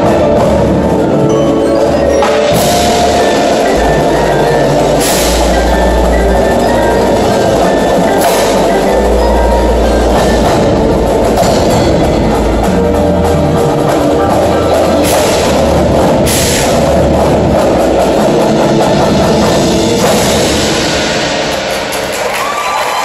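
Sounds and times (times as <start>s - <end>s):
marching drums playing: 0.0s - 23.0s
cymbal crashes: 2.2s - 9.1s, 14.9s - 22.3s.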